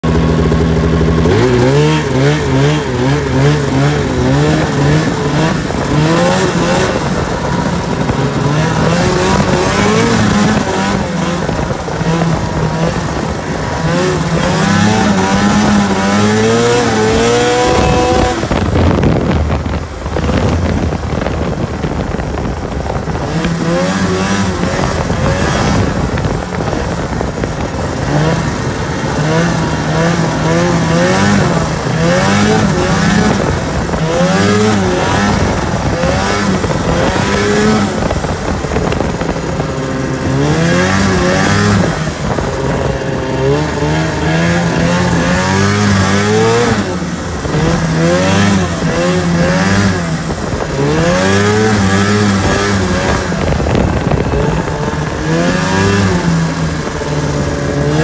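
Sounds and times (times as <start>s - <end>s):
snowmobile engine revving: 0.0s - 58.0s.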